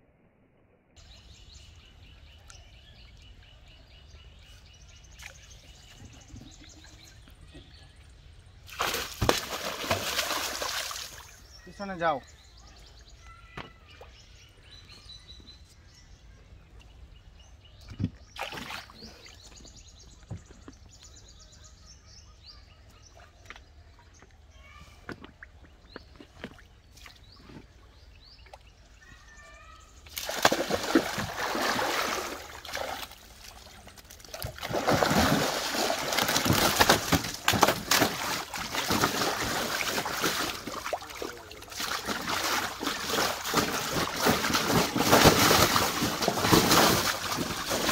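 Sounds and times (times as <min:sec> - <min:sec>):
gentle water sounds: 0:02.1 - 0:12.2, 0:16.6 - 0:21.2, 0:22.8 - 0:47.9
fish splashing in tank: 0:30.1 - 0:47.9.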